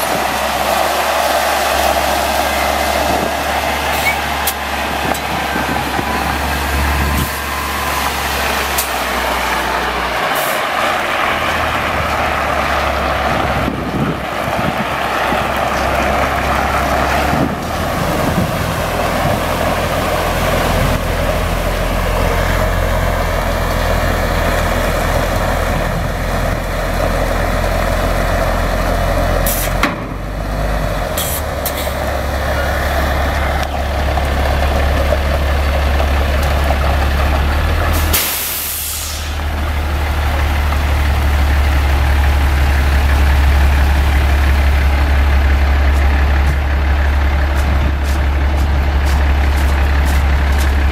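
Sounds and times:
diesel engine running: 0.0 - 50.9
air hiss burst: 38.0 - 39.4
water spraying hiss: 38.0 - 39.4.

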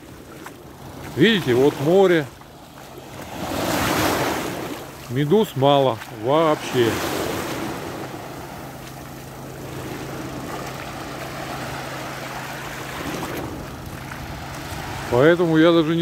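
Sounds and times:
low engine hum: 0.0 - 16.0
small waves breaking on shore: 0.0 - 16.0.

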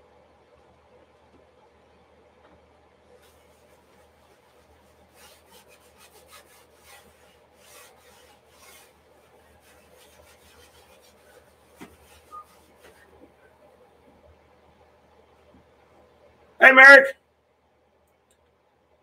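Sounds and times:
pad scrubbing paint on canvas: 3.2 - 13.4.

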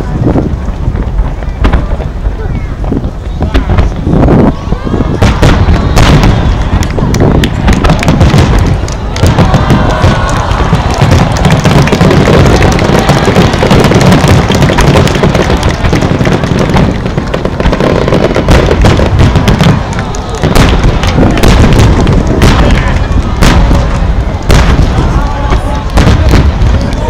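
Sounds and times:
fireworks booming and crackling: 0.0 - 27.0
sharp firework bangs: 0.6 - 27.0.

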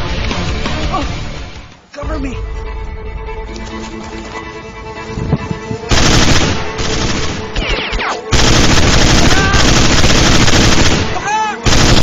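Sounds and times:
automatic gunfire: 5.9 - 12.0.

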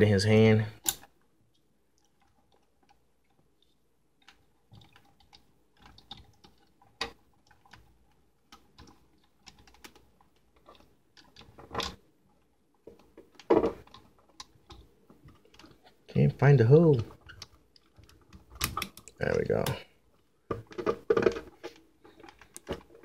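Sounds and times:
plastic clicks and knocks: 12.8 - 15.8, 20.5 - 23.0.

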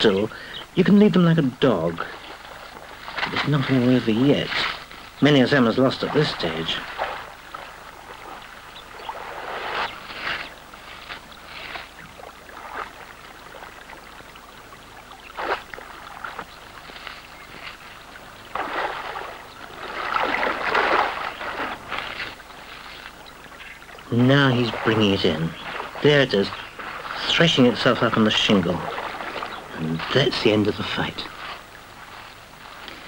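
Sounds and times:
river flowing: 1.2 - 33.0
fish splashing and thrashing: 2.1 - 30.5.

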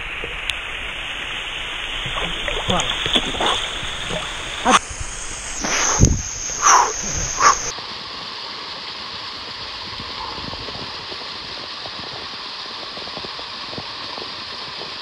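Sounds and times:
waterfall rushing: 0.0 - 7.7.

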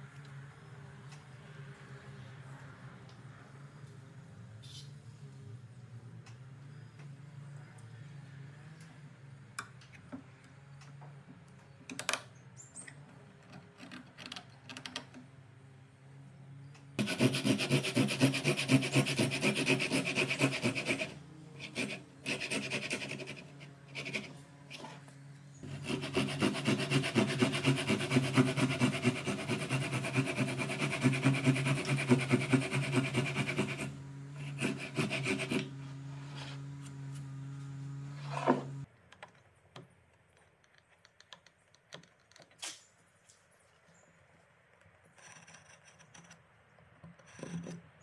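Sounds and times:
hand saw cutting wood: 17.0 - 25.0, 25.6 - 37.3.

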